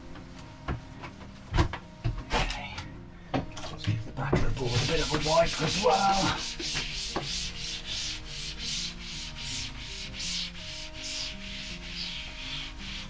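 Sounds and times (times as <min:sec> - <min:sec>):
faint background music: 0:00.0 - 0:13.0
cloth rubbing on board: 0:04.4 - 0:13.0.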